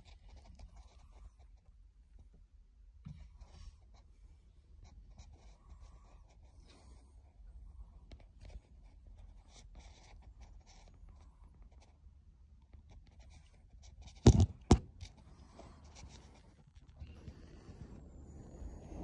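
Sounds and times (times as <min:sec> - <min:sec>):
loud knocks: 0:14.3 - 0:14.9
phone handling rubbing: 0:14.3 - 0:15.0.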